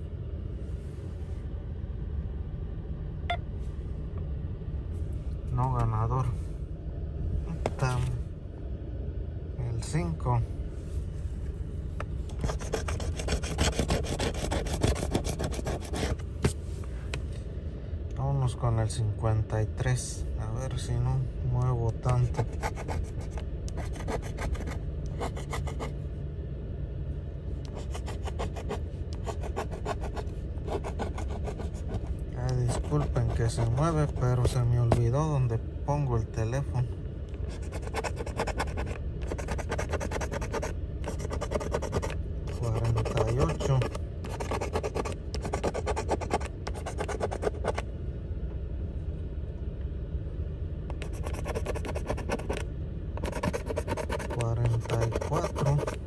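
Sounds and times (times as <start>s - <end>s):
steady low rumble: 0.0s - 56.0s
coin scratching lottery ticket: 12.4s - 16.2s, 22.2s - 25.9s, 27.7s - 34.6s, 37.5s - 47.8s, 50.9s - 52.6s, 53.2s - 56.0s.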